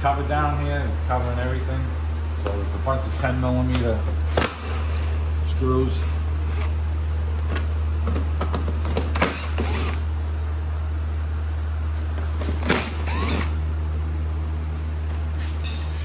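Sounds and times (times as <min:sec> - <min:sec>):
steady low hum: 0:00.0 - 0:16.0
cordless driver removing screws: 0:12.6 - 0:13.6.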